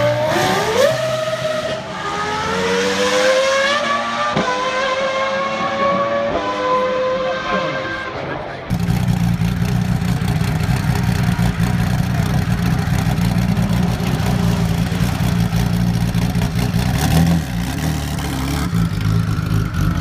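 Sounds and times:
race car engine idling: 0:08.7 - 0:20.0.

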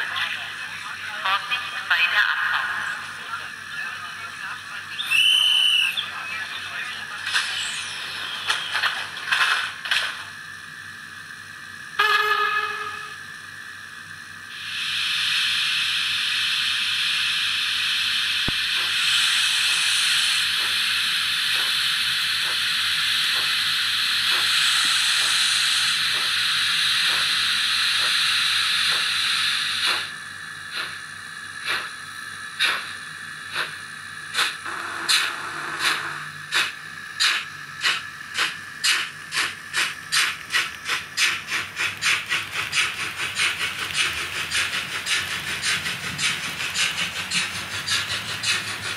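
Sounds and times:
steam locomotive exhaust chuffs: 0:07.2 - 0:48.9
steam hiss: 0:10.4 - 0:48.9.

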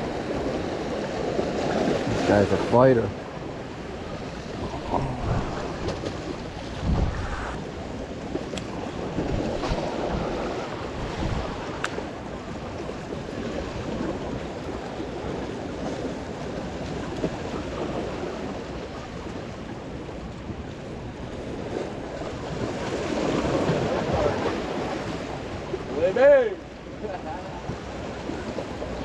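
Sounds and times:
waves splashing against rocks: 0:00.0 - 0:29.0
wind buffeting microphone: 0:03.2 - 0:19.4.

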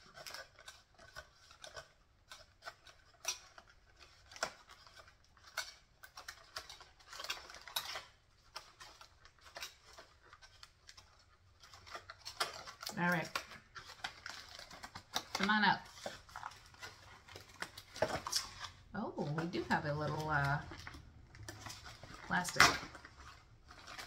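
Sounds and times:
packaging rustle: 0:00.0 - 0:24.0.

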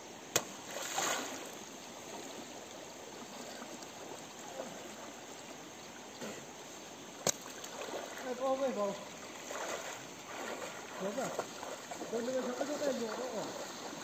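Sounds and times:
river water flowing over stones: 0:00.0 - 0:14.0.

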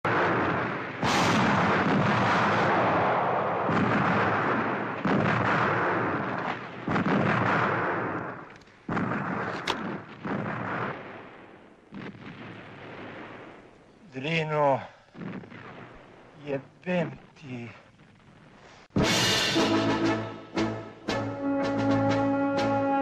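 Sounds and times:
heavy gunfire blasts: 0:00.0 - 0:13.6, 0:15.1 - 0:16.4.

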